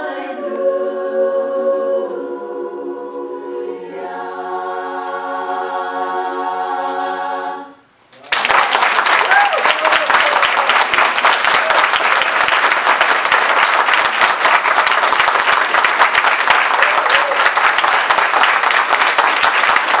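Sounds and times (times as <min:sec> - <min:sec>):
audience applause: 0:08.2 - 0:20.0.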